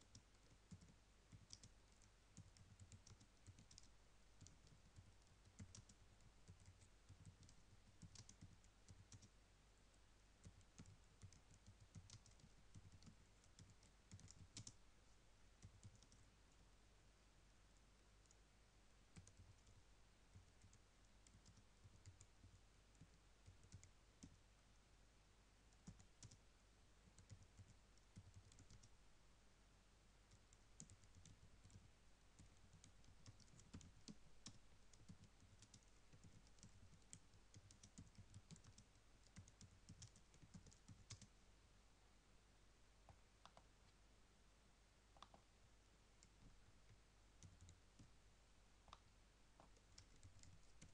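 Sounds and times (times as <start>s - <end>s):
keyboard typing: 0.0s - 9.4s, 10.4s - 14.8s, 15.6s - 16.3s, 19.1s - 24.4s, 25.7s - 26.4s, 27.0s - 28.9s, 30.3s - 41.3s, 45.2s - 45.4s, 46.2s - 48.1s, 49.6s - 50.9s
low steady hum: 0.0s - 50.9s.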